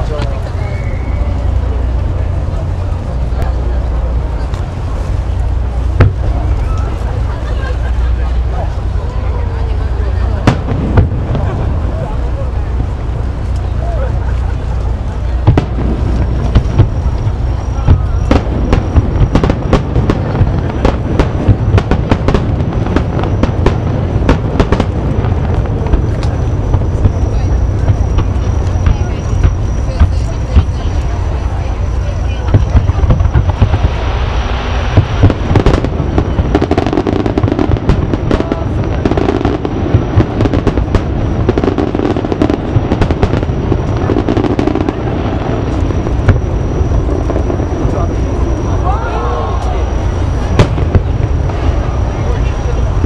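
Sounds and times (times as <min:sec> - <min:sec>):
fireworks bursting: 0:00.0 - 0:53.0
fireworks crackling: 0:00.0 - 0:53.0
low rumble: 0:00.0 - 0:53.0.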